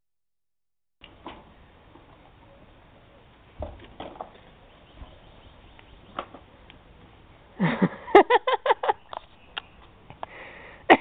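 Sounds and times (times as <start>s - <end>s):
person laughing: 7.6s - 9.1s.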